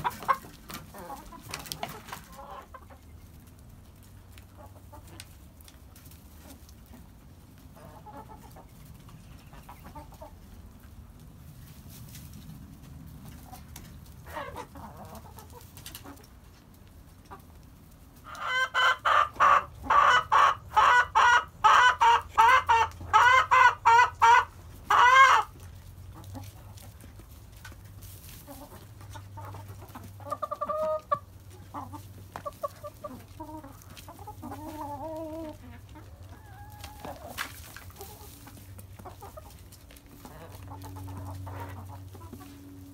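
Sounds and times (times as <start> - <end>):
chicken cackling loudly: 0.0 - 3.2, 14.2 - 16.2, 18.2 - 26.7, 28.4 - 42.9
chickens clucking: 0.0 - 42.9.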